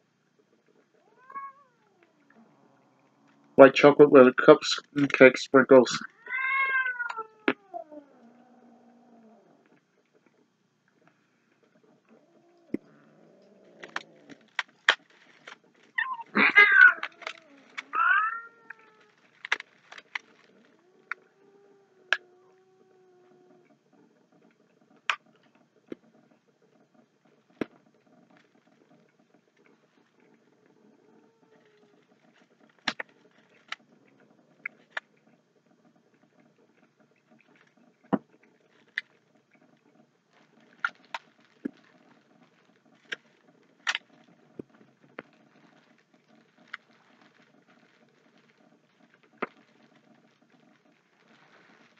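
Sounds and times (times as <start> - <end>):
cat meowing: 1.0 - 2.2, 6.1 - 8.2, 16.0 - 19.2
candy wrapper crinkling: 13.7 - 21.1, 45.2 - 51.9.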